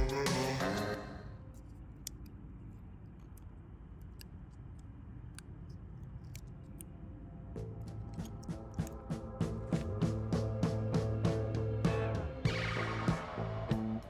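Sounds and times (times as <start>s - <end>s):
background music: 0.0s - 1.5s, 7.6s - 14.0s.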